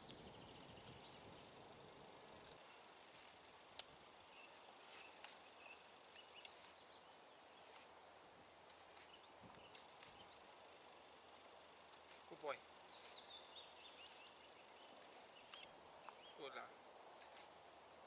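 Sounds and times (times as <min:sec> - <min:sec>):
sharp clicks: 0:15.0 - 0:16.2.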